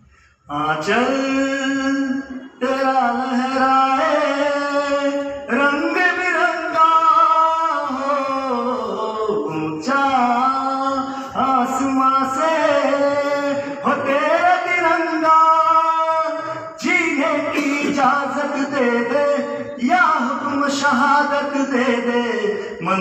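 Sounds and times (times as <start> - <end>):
singer breathing: 0.0 - 0.5, 11.1 - 11.4
man singing unaccompanied: 0.5 - 23.0.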